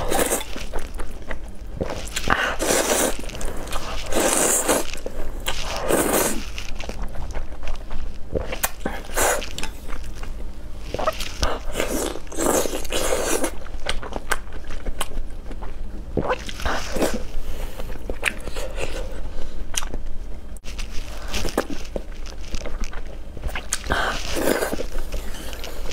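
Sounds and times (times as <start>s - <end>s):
slurping noodles: 2.1s - 5.0s.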